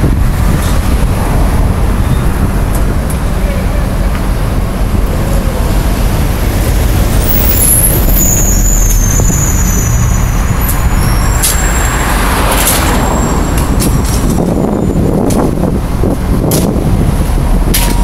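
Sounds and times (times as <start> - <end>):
heavy traffic rumble: 0.0 - 18.0
thin high squeal: 7.3 - 12.0.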